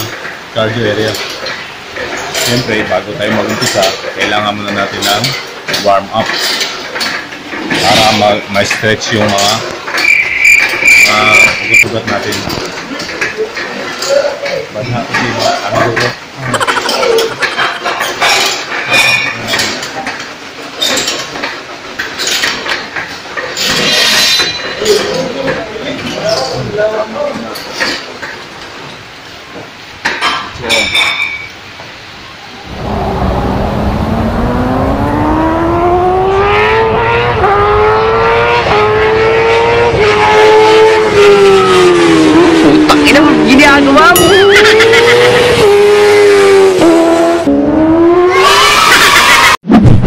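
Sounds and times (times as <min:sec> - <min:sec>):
exercise bike clinking and rattling: 0:00.0 - 0:29.4, 0:30.0 - 0:31.6, 0:43.0 - 0:45.0.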